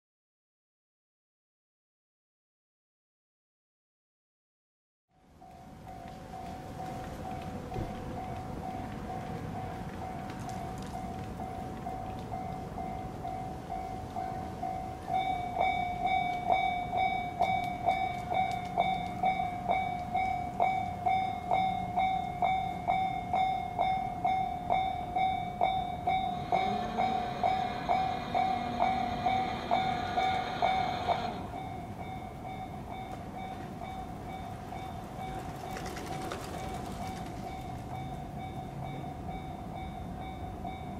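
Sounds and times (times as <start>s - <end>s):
level crossing warning bell: 5.2s - 40.9s
rush of noise with rising whine: 26.4s - 32.2s.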